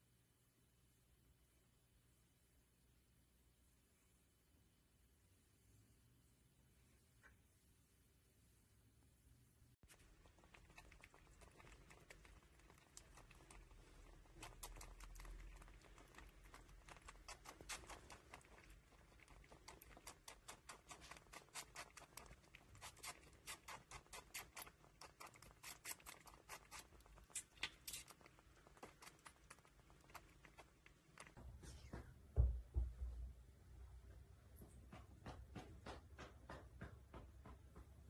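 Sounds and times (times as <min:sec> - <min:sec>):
squirrel suckling wet clicking: 0:09.8 - 0:31.4.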